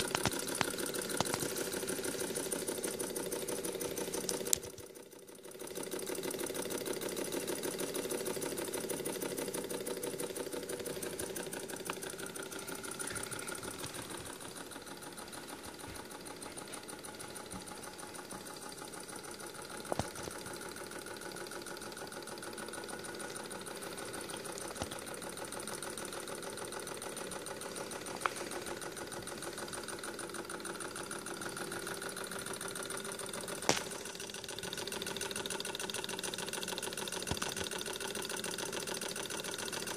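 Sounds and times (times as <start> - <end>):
sharp clicks: 0.0 - 2.4
hot-air engine ticking: 0.0 - 39.9.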